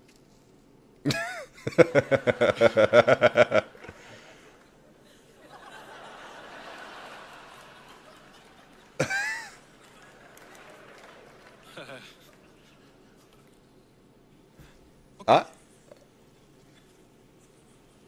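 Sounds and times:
faint steady hiss: 0:00.0 - 0:18.0
man laughing: 0:01.1 - 0:04.2, 0:09.0 - 0:09.6.

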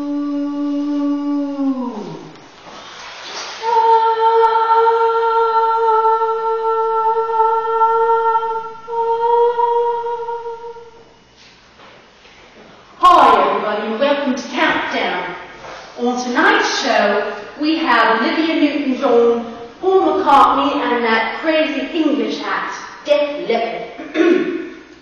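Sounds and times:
woman singing wordless notes: 0:00.0 - 0:02.4, 0:03.6 - 0:11.1, 0:13.0 - 0:22.6.

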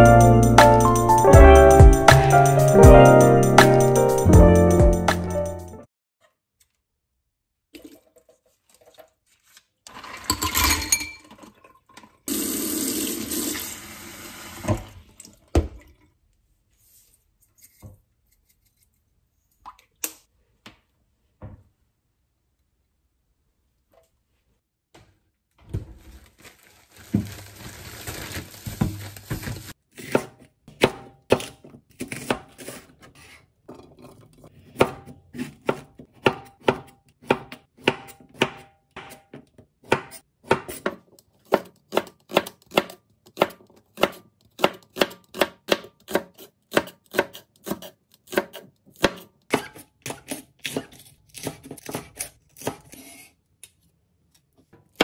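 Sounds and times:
knife chopping on wooden board: 0:30.0 - 0:32.8, 0:34.7 - 0:53.0.

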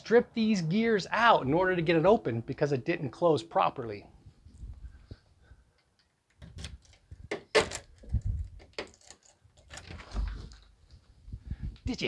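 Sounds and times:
lock gears clicking and grinding: 0:06.4 - 0:10.2.

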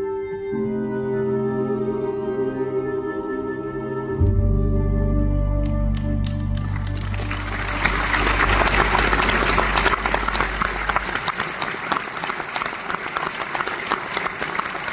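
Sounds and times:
low accompaniment chord: 0:00.0 - 0:11.4
audience applauding: 0:06.2 - 0:14.9.

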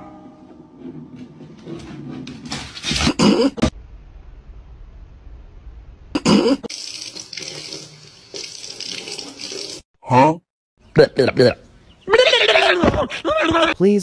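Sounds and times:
faucet running into steel sink: 0:06.7 - 0:09.8.

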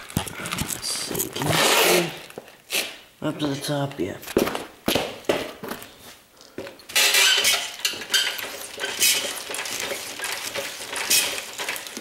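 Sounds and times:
metal frame rattling and clanking: 0:06.9 - 0:12.0.

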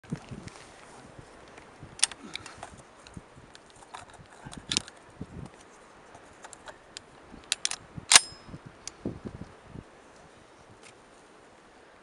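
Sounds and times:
shotgun bolt clacking shut: 0:03.9 - 0:04.9, 0:07.5 - 0:08.4.

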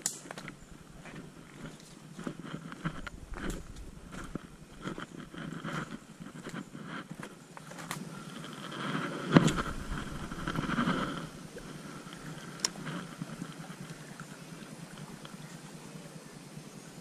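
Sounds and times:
fishing reel whirring: 0:08.1 - 0:15.4.

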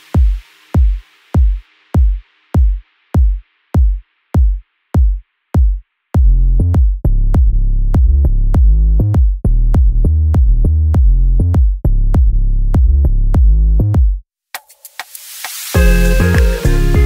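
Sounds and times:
electronic dance music: 0:00.0 - 0:04.5, 0:14.6 - 0:17.0.

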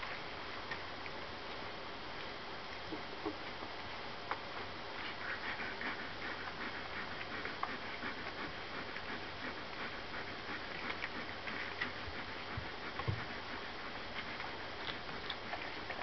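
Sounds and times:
puppies suckling clicks: 0:05.0 - 0:16.0.

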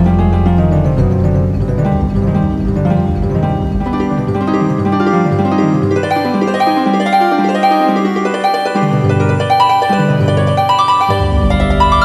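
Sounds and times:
low held drone tone: 0:00.0 - 0:06.8, 0:11.1 - 0:12.0
ambient music melody: 0:00.0 - 0:12.0.

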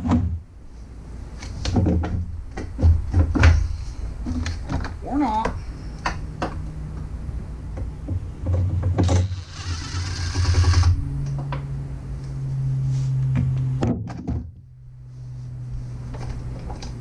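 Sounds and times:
impact driver spinning: 0:09.1 - 0:11.0.

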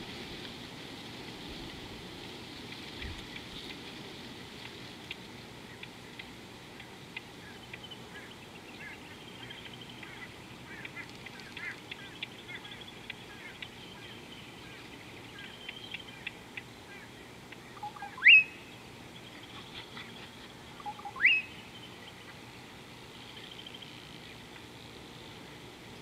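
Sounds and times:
wild birds chirping: 0:02.5 - 0:26.0
loud rising bird call: 0:20.8 - 0:21.7.

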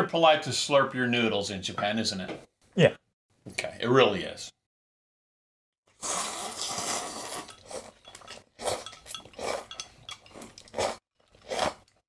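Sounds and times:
people slurping noodles: 0:05.9 - 0:09.8, 0:10.4 - 0:12.0.

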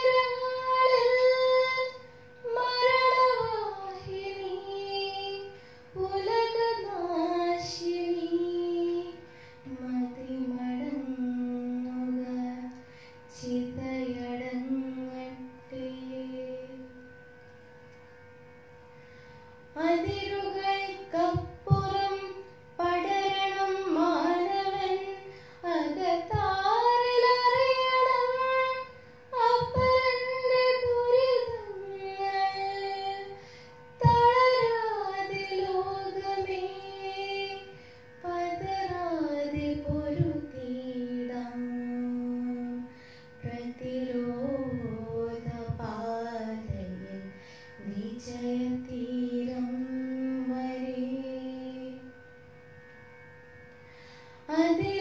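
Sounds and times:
girl singing into a microphone: 0:00.0 - 0:17.0, 0:19.8 - 0:52.1, 0:54.4 - 0:55.0.

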